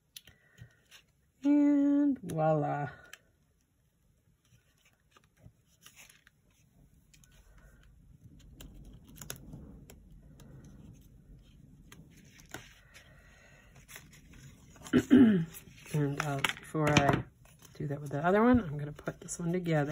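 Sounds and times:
light ticks of paper pieces: 4.3 - 13.0
cardstock rustling: 4.3 - 19.9.

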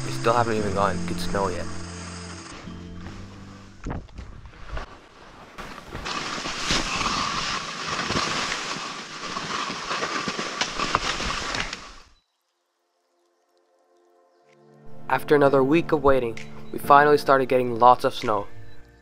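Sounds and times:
skis scraping over snow: 0.0 - 3.8, 4.4 - 12.2.

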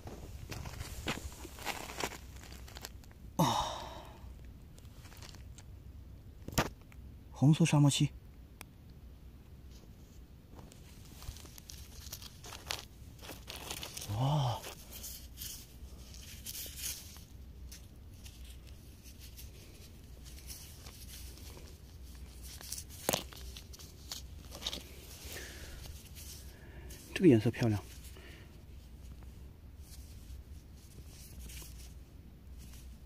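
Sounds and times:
gravel crunching: 0.0 - 4.2, 4.8 - 5.7, 10.6 - 27.1
glove fabric rustling: 0.2 - 3.0, 10.6 - 33.0.

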